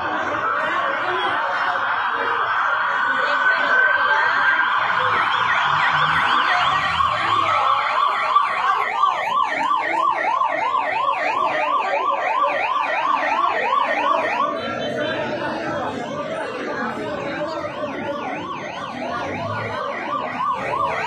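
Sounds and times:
police siren yelping: 0:00.0 - 0:21.0.

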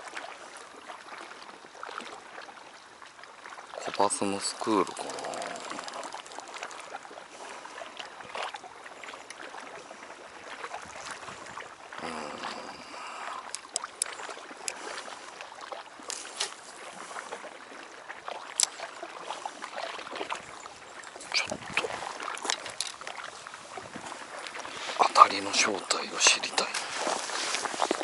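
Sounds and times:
small waves lapping against wall: 0:00.0 - 0:28.0
small clicks: 0:04.8 - 0:07.0, 0:13.4 - 0:14.8.

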